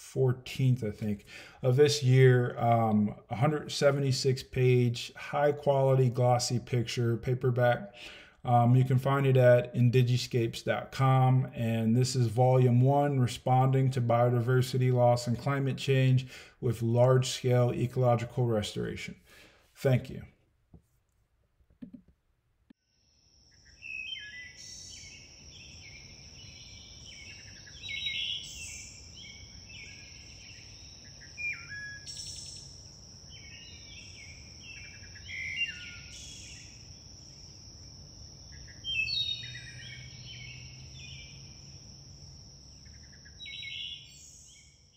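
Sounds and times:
high-pitched insect trill: 0:22.8 - 0:44.9
birds singing: 0:23.4 - 0:37.6, 0:38.4 - 0:44.9.

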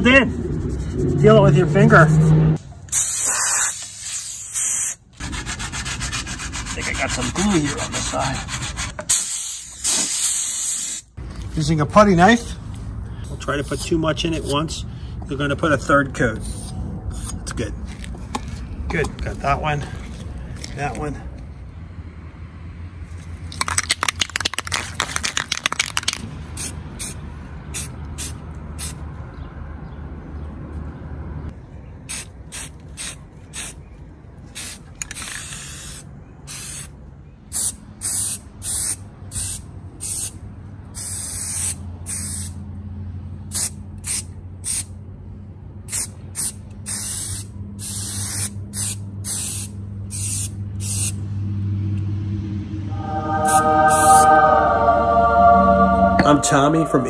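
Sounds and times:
spray can rattling: 0:02.9 - 0:05.0, 0:23.5 - 0:26.2, 0:34.6 - 0:35.9
spray paint hissing bursts: 0:02.9 - 0:11.1, 0:25.3 - 0:27.2, 0:27.8 - 0:29.0, 0:32.1 - 0:33.8, 0:34.6 - 0:36.9, 0:37.5 - 0:40.4, 0:41.0 - 0:42.6, 0:43.5 - 0:44.9, 0:45.9 - 0:51.2.

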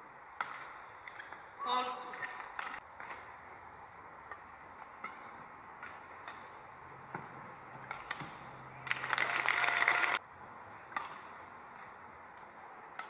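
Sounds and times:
racket hitting shuttlecock: 0:04.2 - 0:09.0, 0:10.9 - 0:11.4
crowd cheering and applause: 0:08.7 - 0:10.2.

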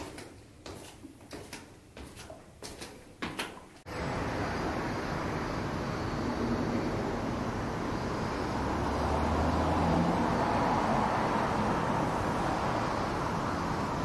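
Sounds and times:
rush of passing cars: 0:03.9 - 0:14.0
vehicle engine hum passing: 0:03.9 - 0:14.0.

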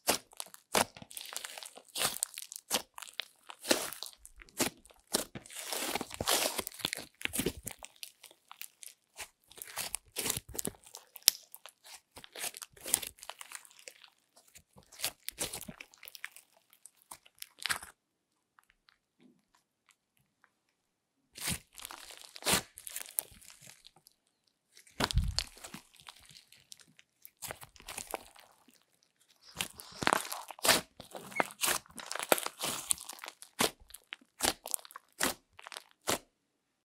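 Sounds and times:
slime crackling and clicking: 0:09.6 - 0:17.8, 0:29.5 - 0:36.2.

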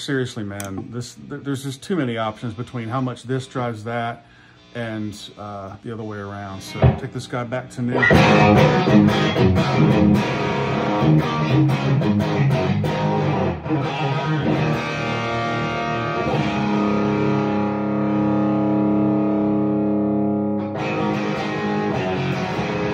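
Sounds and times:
overdriven electric guitar: 0:07.9 - 0:22.9.

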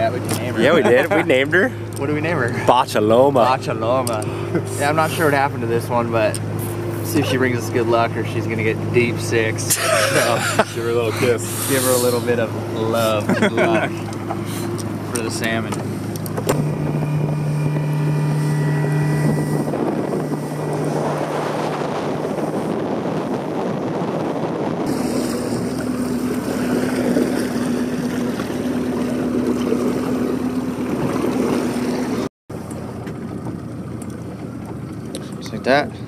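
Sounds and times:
outboard motor droning: 0:00.0 - 0:36.0
water rushing: 0:00.0 - 0:36.0
wind on microphone: 0:10.6 - 0:32.3.

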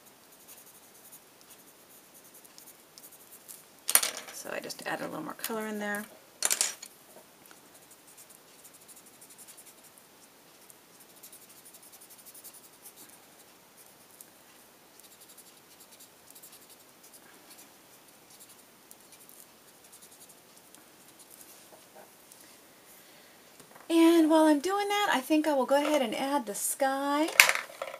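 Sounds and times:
coloured pencil scratching on paper: 0:00.0 - 0:03.6, 0:07.6 - 0:21.7.

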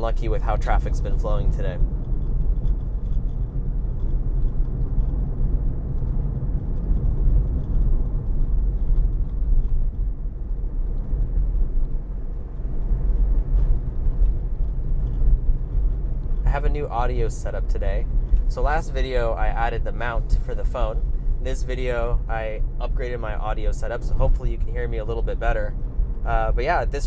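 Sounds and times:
road and tyre rumble: 0:00.0 - 0:27.0.

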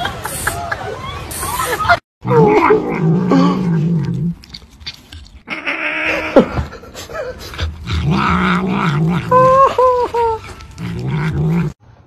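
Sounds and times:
cat growling: 0:07.6 - 0:09.8, 0:10.8 - 0:11.8.

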